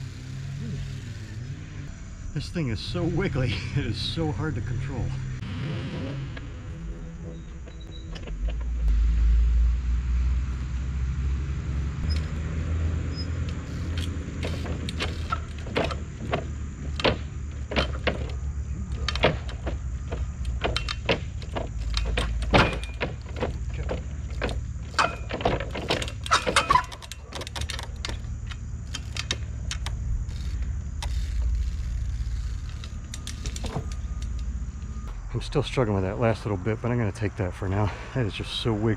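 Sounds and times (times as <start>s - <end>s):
bike knocking on wooden pallets: 13.4s - 34.3s.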